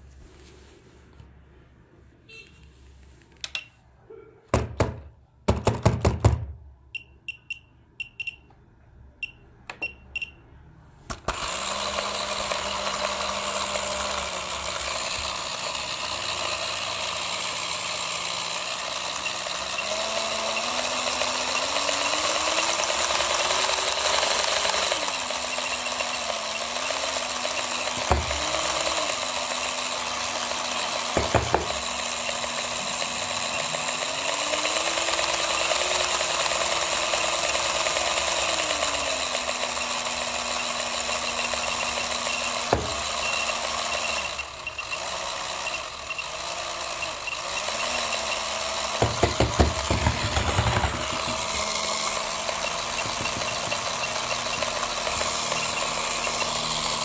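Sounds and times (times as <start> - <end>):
short beeps: 2.3 - 2.7, 6.9 - 8.5, 9.2 - 10.5
toy motor and gears whirring: 11.2 - 57.0.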